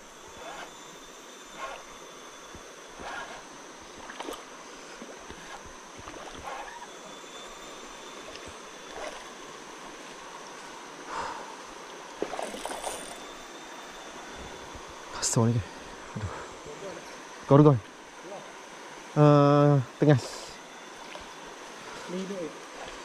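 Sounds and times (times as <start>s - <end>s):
water splashes: 12.1s - 13.2s.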